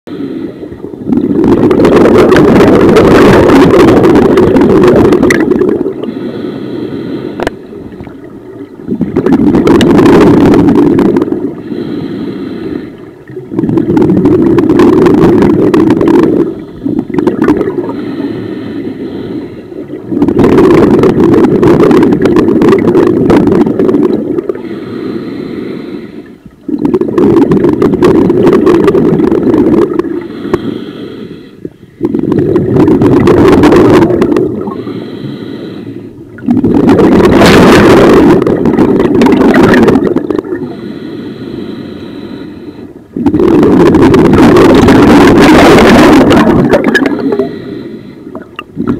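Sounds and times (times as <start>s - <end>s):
bubbling exhalations underwater: 0.9s - 6.2s, 7.4s - 11.8s, 13.0s - 18.1s, 19.8s - 24.7s, 26.6s - 30.3s, 32.0s - 34.9s, 36.3s - 40.7s, 43.1s - 47.6s
hissing inhalation through regulator: 6.0s - 7.6s, 11.0s - 13.2s, 14.5s - 21.0s, 23.7s - 26.4s, 29.7s - 36.2s, 39.4s - 43.2s, 46.1s - 48.5s.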